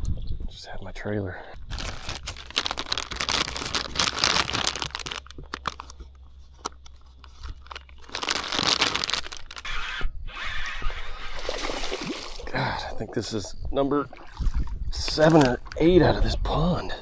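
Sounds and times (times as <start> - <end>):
plastic bag crinkling: 1.7 - 9.9.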